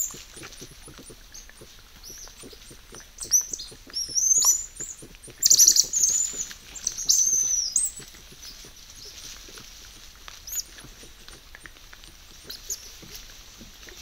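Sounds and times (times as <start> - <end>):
animals chirping squeals: 0.0 - 9.8
scratching and rustling in leaves: 0.0 - 14.0.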